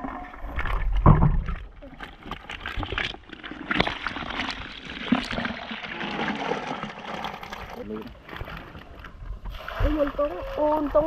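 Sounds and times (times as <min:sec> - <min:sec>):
mud and fish sloshing and splattering: 0:00.0 - 0:11.0
thump: 0:01.0 - 0:01.6.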